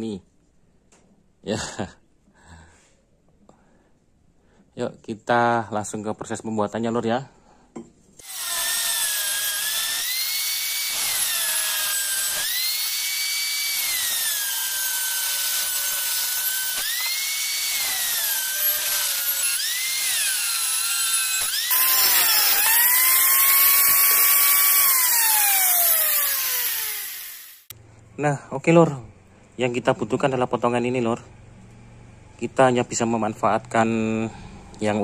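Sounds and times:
angle grinder cutting metal: 0:08.2 - 0:27.7.

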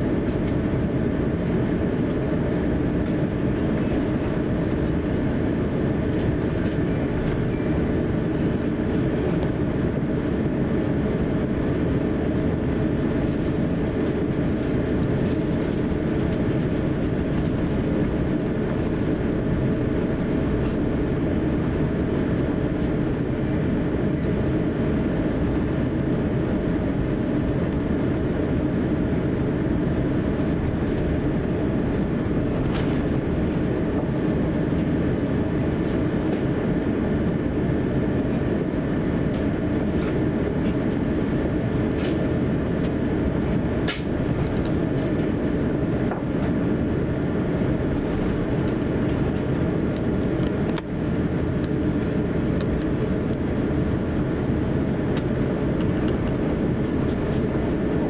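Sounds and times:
faint steady hums: 0:00.0 - 0:58.0
low rumble of taxiing jet engines: 0:00.0 - 0:58.0.

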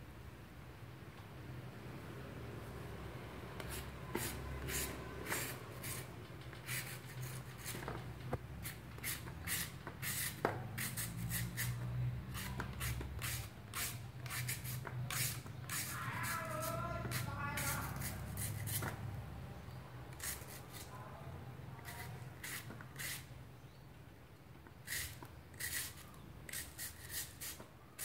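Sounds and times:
peeler scraping mango: 0:03.6 - 0:19.2, 0:20.1 - 0:21.1, 0:21.7 - 0:23.4, 0:24.7 - 0:28.0.

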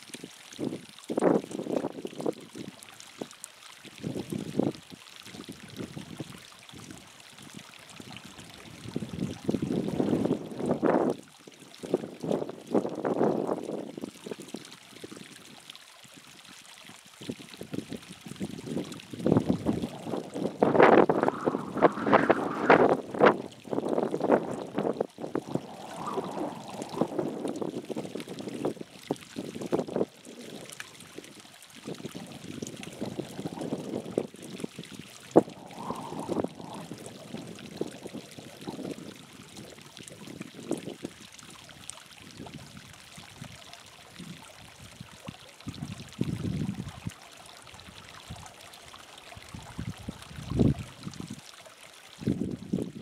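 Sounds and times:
water trickling over rock: 0:00.0 - 0:53.0
wind gusts on microphone: 0:07.6 - 0:11.2, 0:17.6 - 0:31.3, 0:31.9 - 0:41.3, 0:44.2 - 0:47.1, 0:49.4 - 0:51.4, 0:52.2 - 0:53.0.

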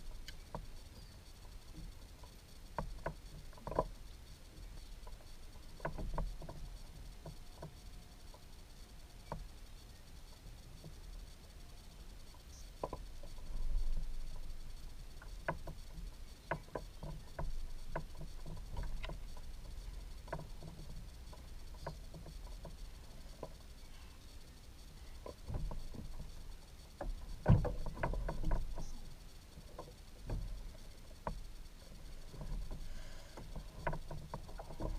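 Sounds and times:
taps and knocks on a kayak: 0:27.0 - 0:28.9.

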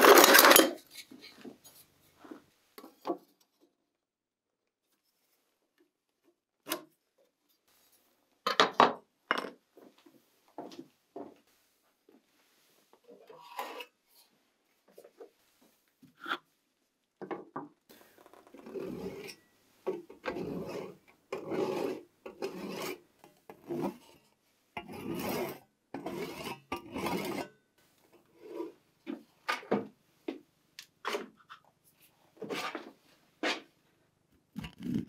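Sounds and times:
hand saw cutting wood: 0:20.3 - 0:23.0, 0:25.0 - 0:27.4.

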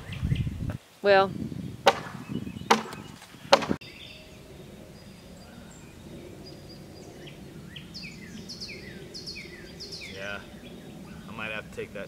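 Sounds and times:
low outdoor background: 0:00.0 - 0:12.0
hard knock on wooden frame: 0:01.9 - 0:03.8.

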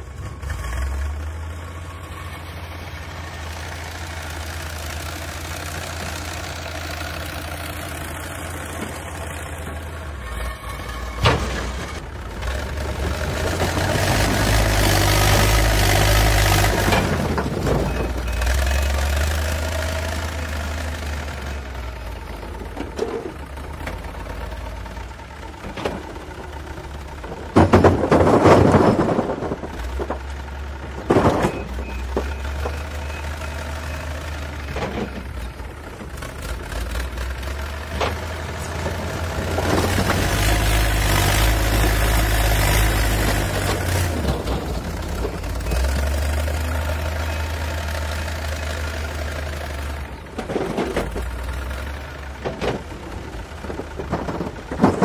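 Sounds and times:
diesel engine running: 0:00.0 - 0:55.0
concrete blocks clattering into trailer: 0:27.2 - 0:32.4, 0:52.3 - 0:55.0.

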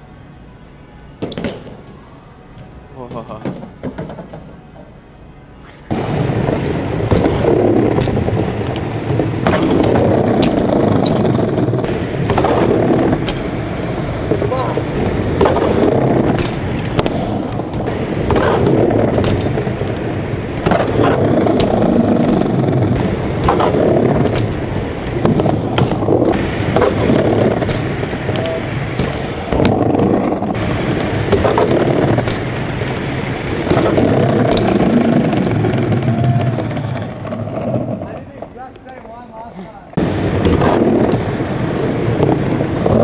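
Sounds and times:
bike tyres rumbling on concrete: 0:05.9 - 0:43.0
sharp clacks and knocks: 0:33.6 - 0:38.2.

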